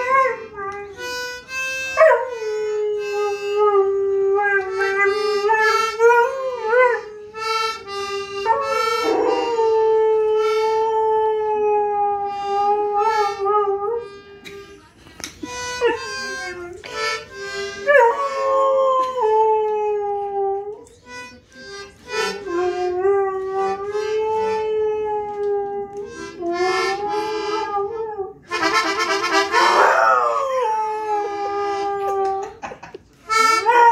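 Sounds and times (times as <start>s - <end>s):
toy accordion notes: 0.0s - 9.6s, 10.4s - 10.8s, 12.3s - 18.6s, 20.8s - 24.8s, 26.0s - 27.7s, 28.5s - 29.8s, 33.2s - 33.9s
dog howling: 8.4s - 14.0s, 29.6s - 32.6s.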